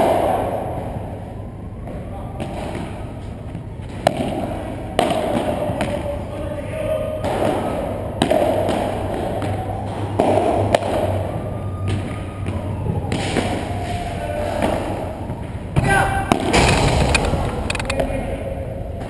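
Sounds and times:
ball bouncing off court and walls: 15.8s - 18.0s.

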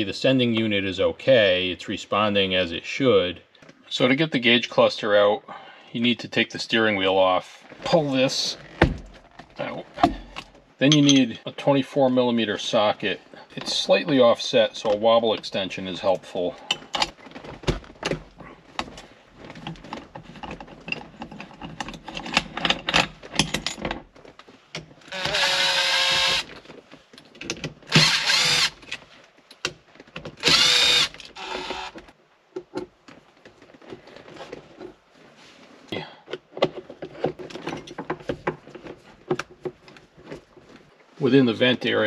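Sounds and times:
tool handling clicks and clatter: 16.2s - 25.2s, 36.3s - 40.9s
impact driver whirring: 25.1s - 26.5s, 27.9s - 28.8s, 30.4s - 32.0s.

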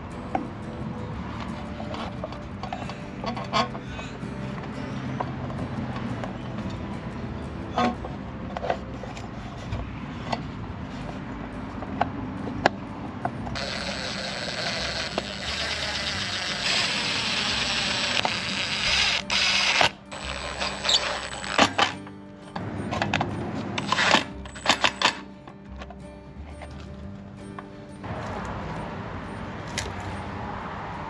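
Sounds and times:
cordless impact driver running: 13.6s - 21.9s.

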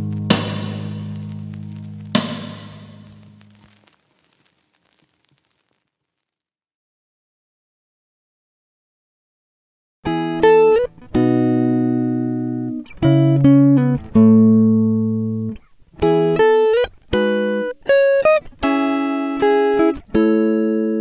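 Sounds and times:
plucked string music: 10.1s - 21.0s.

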